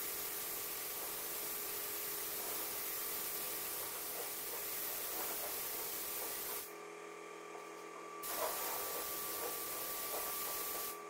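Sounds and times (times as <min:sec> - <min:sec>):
spray gun hissing: 0:00.0 - 0:06.7, 0:08.2 - 0:11.0.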